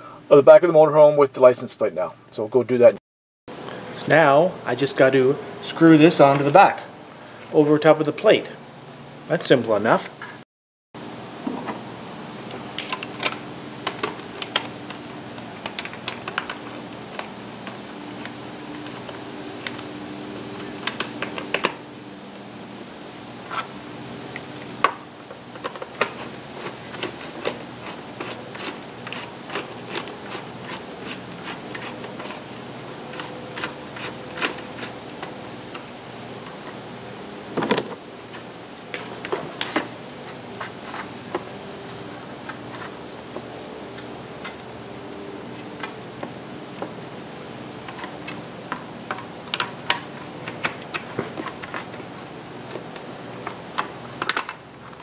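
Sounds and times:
faint steady hum: 0:11.0 - 0:55.0.

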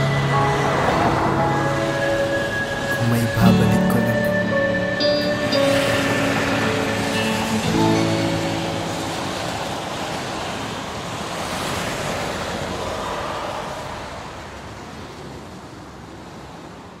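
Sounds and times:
steady rushing noise: 0:04.6 - 0:15.4.

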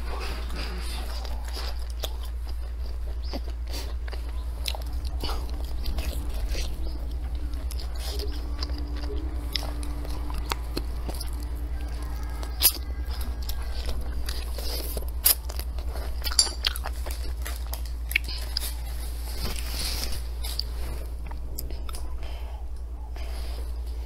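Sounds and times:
steady low hum: 0:00.0 - 0:24.0
wet chewing mouth sounds: 0:00.0 - 0:24.0.

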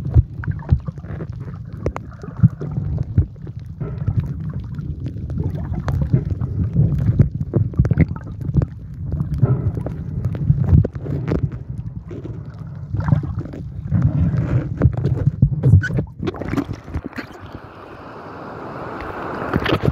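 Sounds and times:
muffled water rumbling underwater: 0:00.0 - 0:19.9
wind: 0:00.0 - 0:19.9
waves: 0:16.2 - 0:19.9.

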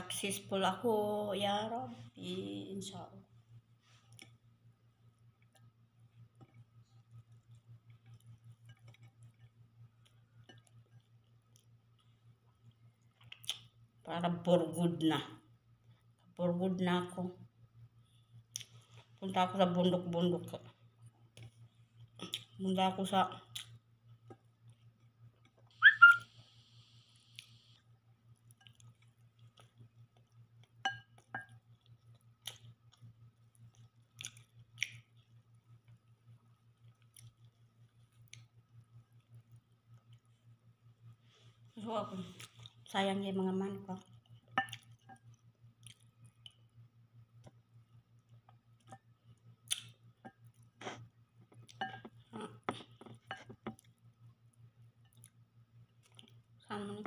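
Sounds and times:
steady low hum: 0:00.0 - 0:57.0
person chewing with mouth smacks: 0:05.4 - 0:13.7, 0:18.5 - 0:19.2, 0:21.3 - 0:22.6, 0:23.5 - 0:26.2, 0:28.3 - 0:40.6, 0:44.0 - 0:46.6, 0:47.4 - 0:54.1, 0:55.0 - 0:56.6
fingers clicking on glass bowl: 0:30.9 - 0:31.6.

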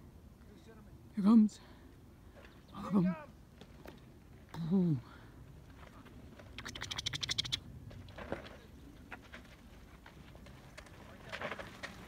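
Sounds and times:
tyres rolling on dirt: 0:07.8 - 0:12.0.

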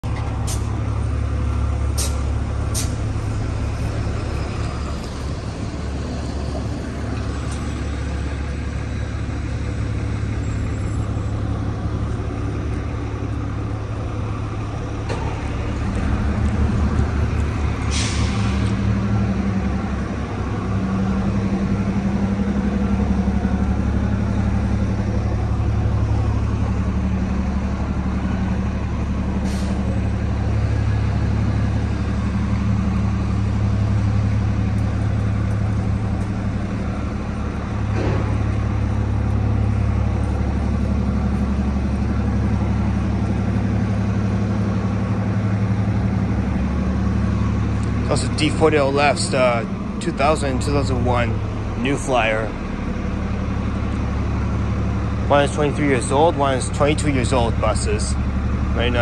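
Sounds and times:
bus engines droning: 0:00.0 - 0:59.0
air brake hiss: 0:02.0 - 0:03.0, 0:17.8 - 0:18.8, 0:29.4 - 0:29.9.

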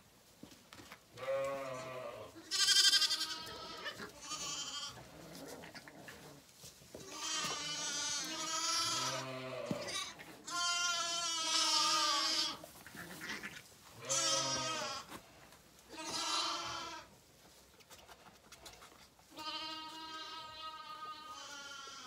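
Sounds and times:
lambs bleating: 0:01.2 - 0:06.0, 0:07.0 - 0:15.2, 0:15.9 - 0:17.1, 0:19.3 - 0:22.0.

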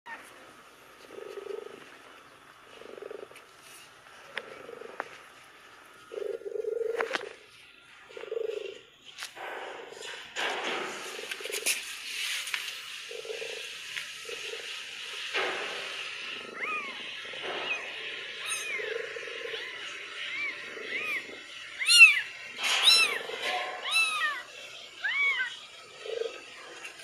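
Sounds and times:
kittens mewing: 0:16.4 - 0:26.5.

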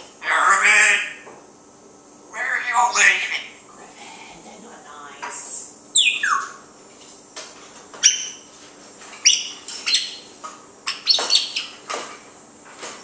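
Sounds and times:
parrot whistled chirps: 0:06.0 - 0:06.6, 0:09.2 - 0:10.2.

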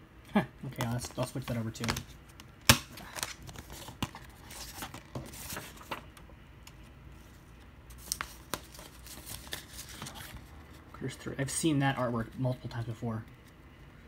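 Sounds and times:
paper insert sliding and crinkling: 0:03.1 - 0:06.1.

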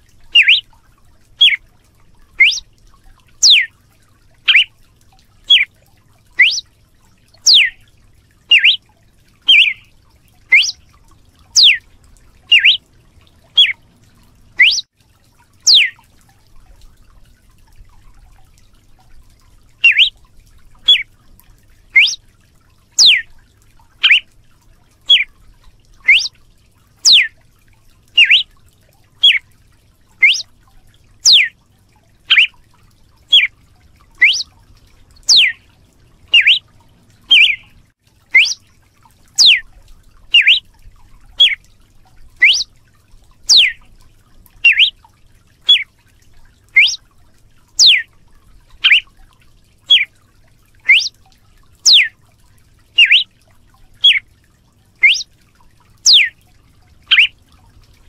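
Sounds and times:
bird giving sharp whip-like notes: 0:06.4 - 0:06.6, 0:30.2 - 0:30.4, 0:38.4 - 0:38.6.

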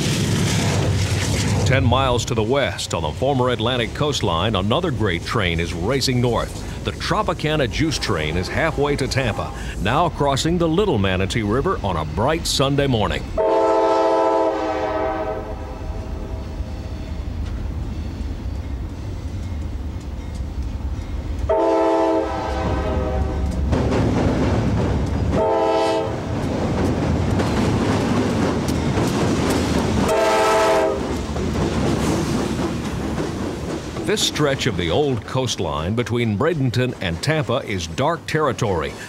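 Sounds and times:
freight train rumbling: 0:00.0 - 0:39.0
locomotive air horn blasts: 0:13.4 - 0:16.3, 0:21.5 - 0:23.5, 0:25.4 - 0:26.2, 0:30.1 - 0:31.1
wheels clattering on rails: 0:23.3 - 0:25.5, 0:26.1 - 0:39.0.

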